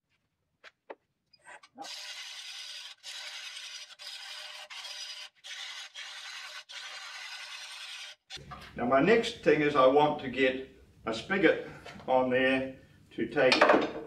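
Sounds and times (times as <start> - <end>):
lathe tool shearing wood: 1.8 - 8.2.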